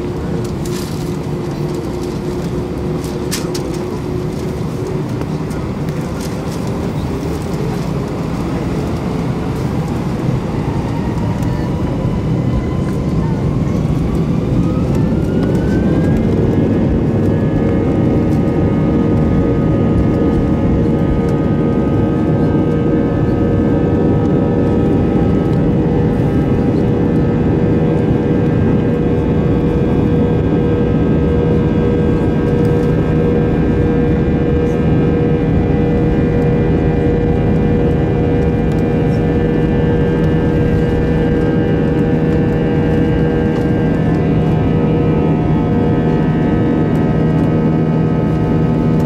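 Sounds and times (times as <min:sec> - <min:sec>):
jet engines roaring with whine: 0:00.0 - 0:49.0.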